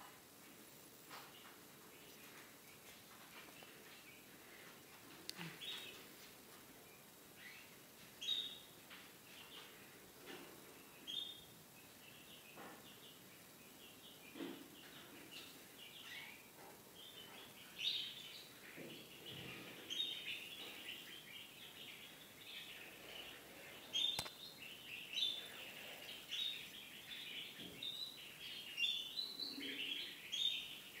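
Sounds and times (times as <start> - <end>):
nestlings begging chirps: 6.9 - 31.0
sharp click: 24.1 - 24.4.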